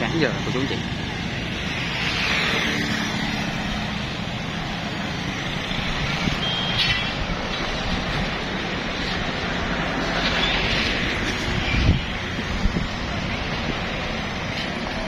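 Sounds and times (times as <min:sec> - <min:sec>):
passing motor traffic: 0:00.0 - 0:15.0
wind on microphone: 0:05.8 - 0:14.5.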